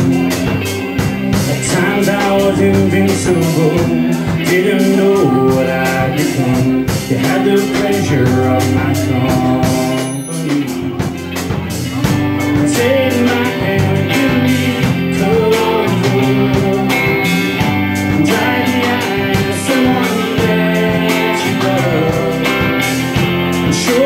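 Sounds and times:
bending melodic lead line: 0:00.0 - 0:24.0
drum kit beat: 0:00.0 - 0:24.0
electric guitars: 0:00.0 - 0:24.0.

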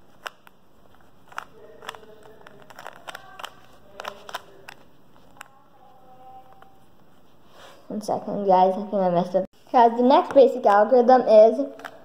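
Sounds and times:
puzzle cube clicking: 0:00.1 - 0:05.6.

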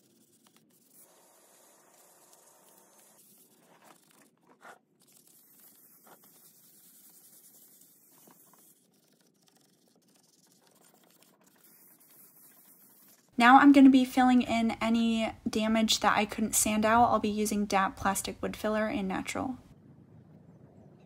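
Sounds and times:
sandpaper scraping wood: 0:00.0 - 0:13.3.

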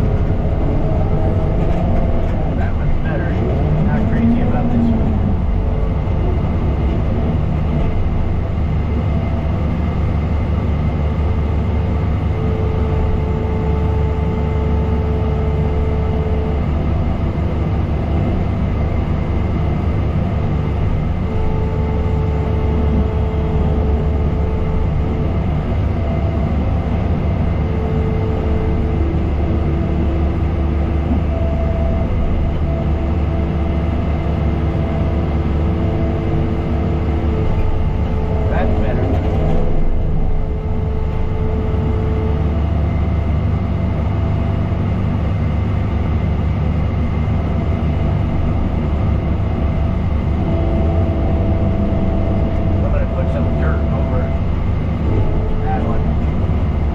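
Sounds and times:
diesel construction machine engine: 0:00.0 - 0:56.9
high-pitched whine: 0:18.1 - 0:46.2, 0:47.2 - 0:56.9.

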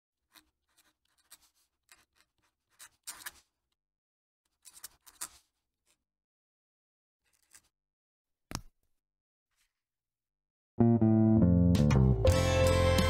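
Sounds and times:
pen nib scratching on paper: 0:00.3 - 0:03.6, 0:04.5 - 0:06.0.

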